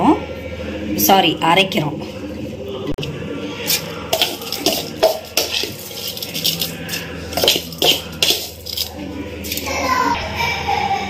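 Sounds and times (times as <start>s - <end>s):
rice clinking against steel jar: 3.7s - 9.6s.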